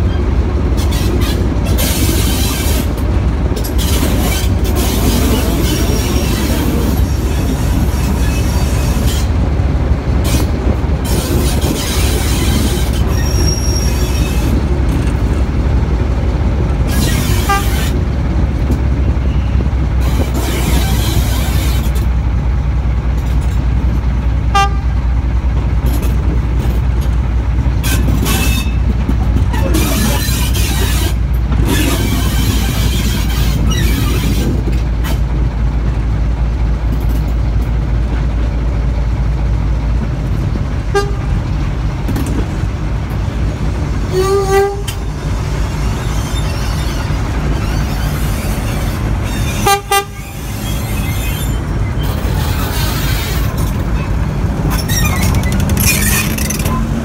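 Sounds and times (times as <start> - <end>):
diesel train rumbling: 0.0 - 57.0
locomotive horn toots: 16.9 - 18.0, 24.5 - 25.0, 40.8 - 41.5, 44.0 - 45.2, 46.8 - 54.2.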